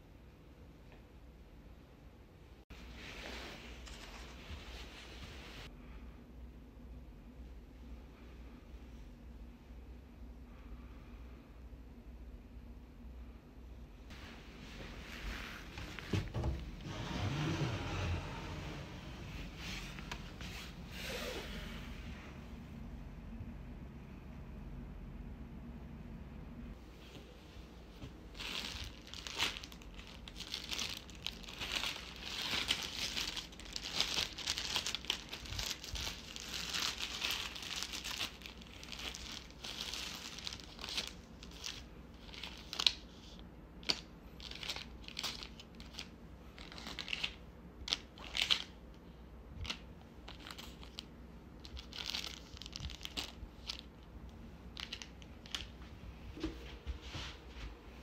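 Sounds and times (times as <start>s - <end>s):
wrappers crinkling and rustling: 27.9s - 48.8s, 49.6s - 54.1s, 54.7s - 55.9s.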